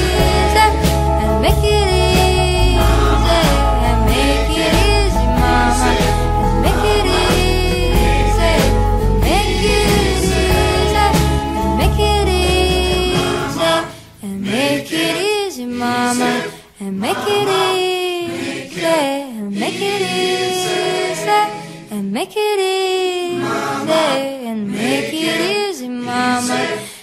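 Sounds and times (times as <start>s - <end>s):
low accompaniment: 0.0s - 13.9s
solo voice singing slow melody: 0.0s - 23.4s.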